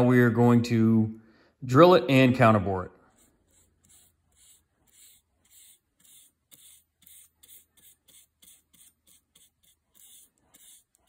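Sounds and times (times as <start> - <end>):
brush swishing on steel: 3.0 - 11.0.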